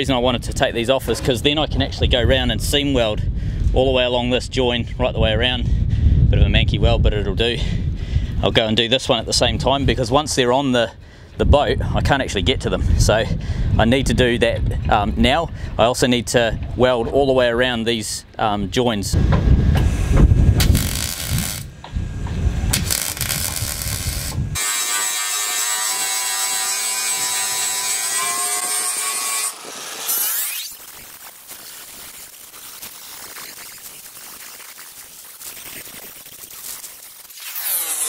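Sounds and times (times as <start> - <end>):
angle grinder on metal: 20.6 - 21.8, 22.7 - 38.0.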